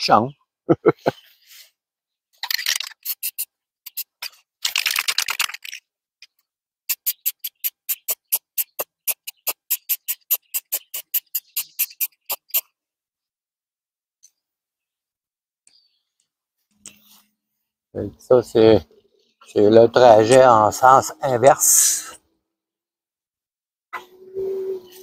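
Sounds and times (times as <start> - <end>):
mixing ball rattling in can: 2.4 - 5.9
spray can hissing: 2.5 - 4.2, 6.9 - 12.7.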